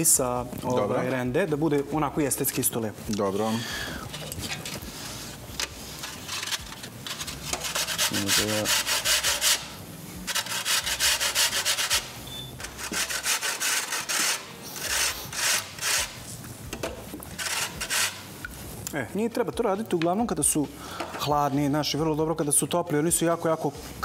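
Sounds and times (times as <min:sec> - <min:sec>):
pastry scraping on a metal grater: 0:04.5 - 0:09.7, 0:10.3 - 0:16.2, 0:17.4 - 0:18.3.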